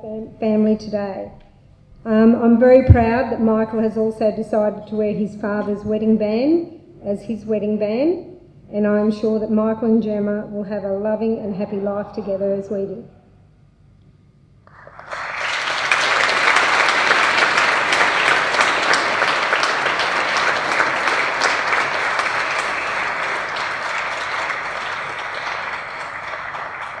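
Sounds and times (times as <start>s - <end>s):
guests applauding: 14.6s - 27.0s.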